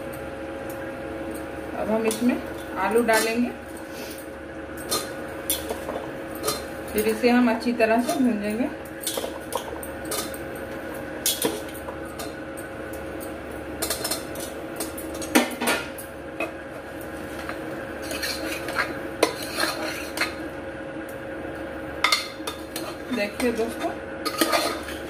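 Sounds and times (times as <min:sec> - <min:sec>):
steady hum: 0:00.0 - 0:25.0
ladle scraping metal pot: 0:17.4 - 0:20.4, 0:22.5 - 0:25.0.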